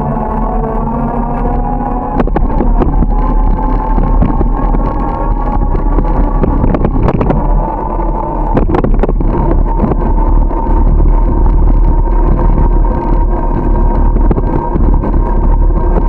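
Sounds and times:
faint steady hum: 0:00.0 - 0:16.0
wind and road rumble: 0:00.0 - 0:16.0.

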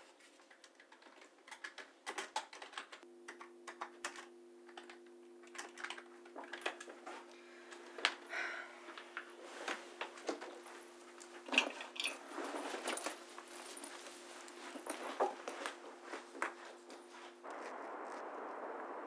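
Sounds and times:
steady low hum: 0:03.0 - 0:19.0
cloth and bag rustling: 0:09.4 - 0:17.5.

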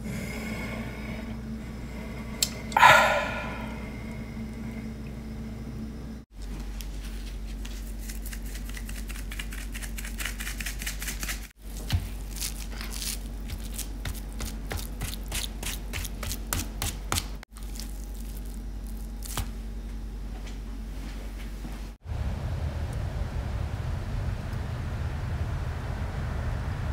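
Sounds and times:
steady low hum: 0:00.0 - 0:26.9
hands rubbing and patting meat: 0:06.4 - 0:19.6.

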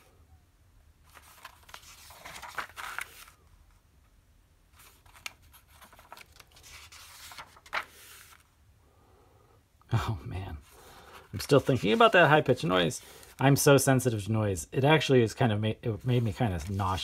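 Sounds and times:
paper pages being turned: 0:01.0 - 0:03.8, 0:04.7 - 0:08.5, 0:10.8 - 0:13.5, 0:16.0 - 0:17.0.

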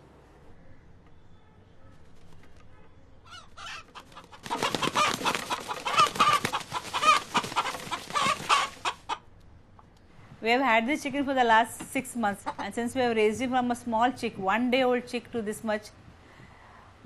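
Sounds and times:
rooster clucking and squawking: 0:03.3 - 0:09.3, 0:12.4 - 0:12.8.

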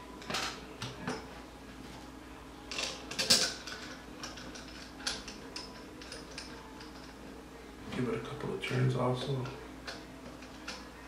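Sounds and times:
small metal clicks and rattles: 0:02.7 - 0:07.2.

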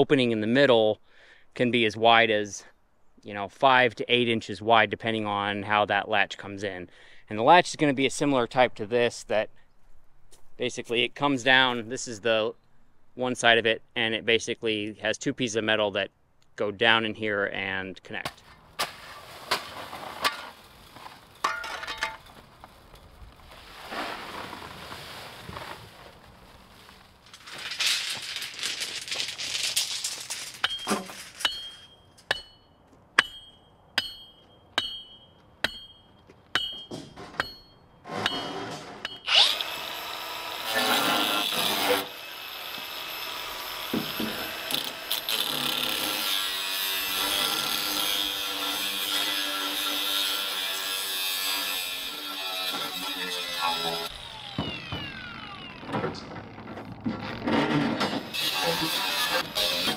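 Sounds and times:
power tool running: 0:39.3 - 0:45.4, 0:53.7 - 0:56.8.

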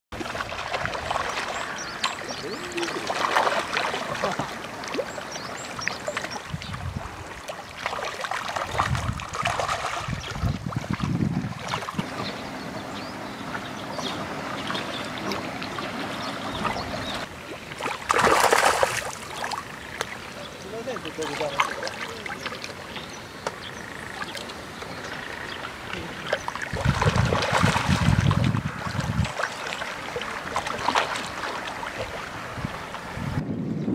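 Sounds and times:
fish splashing in water: 0:00.2 - 0:12.4, 0:13.2 - 0:33.1
wind rumble on microphone: 0:06.4 - 0:07.3, 0:08.6 - 0:14.5, 0:26.7 - 0:29.4, 0:31.9 - 0:33.9.

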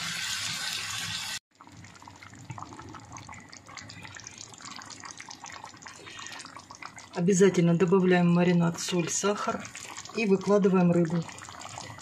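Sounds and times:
vegetables sizzling in hot oil: 0:00.0 - 0:01.4
tomato sauce bubbling and crackling: 0:01.3 - 0:12.0.

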